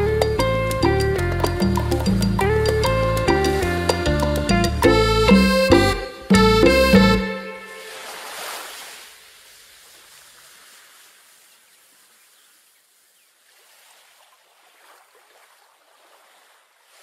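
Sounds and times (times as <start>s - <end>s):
low musical note: 0.0s - 8.0s
ocean waves on shore: 7.2s - 17.0s.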